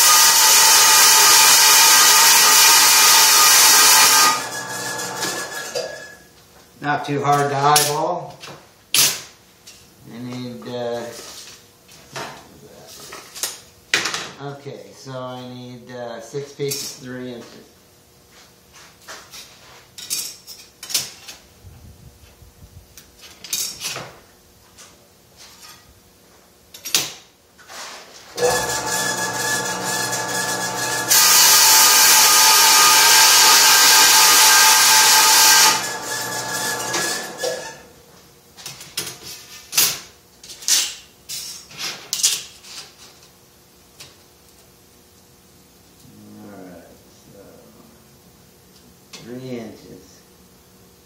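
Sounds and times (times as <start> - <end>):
bandsaw humming: 0.0 - 5.9, 28.4 - 37.9
bandsaw cutting sheet steel: 0.0 - 6.1, 28.4 - 37.9.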